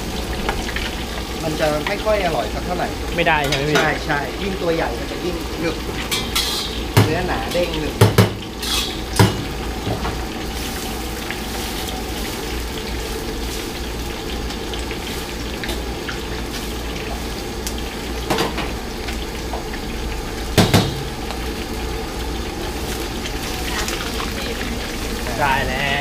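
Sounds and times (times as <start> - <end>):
fish sizzling in hot oil: 0.0 - 26.0
utensil clanking on wok: 3.3 - 4.2, 5.7 - 10.2.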